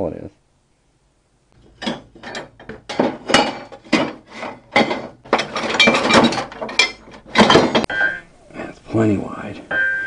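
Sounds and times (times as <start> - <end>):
steel tubing scraping and clattering: 1.6 - 7.9.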